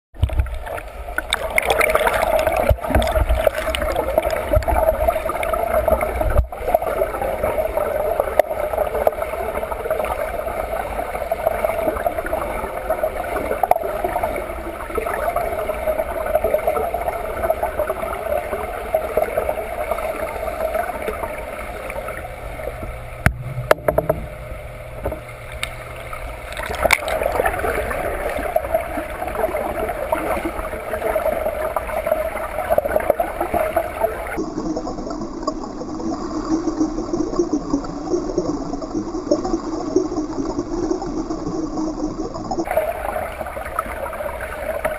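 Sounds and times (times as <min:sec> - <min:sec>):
swimmer's strokes and kicks churning: 0:00.2 - 0:13.8, 0:20.0 - 0:34.2
underwater rushing and gurgling water: 0:00.2 - 0:44.9.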